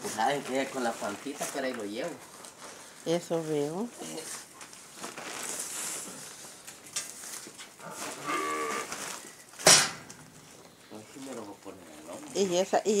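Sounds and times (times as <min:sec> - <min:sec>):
cow mooing: 0:07.8 - 0:08.9
loud sharp knock: 0:09.6 - 0:10.1.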